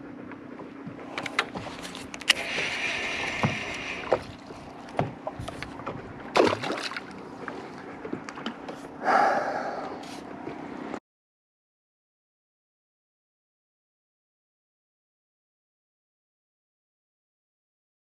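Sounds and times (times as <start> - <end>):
steady low hum: 0.0 - 11.0
breathy rush: 9.0 - 10.2.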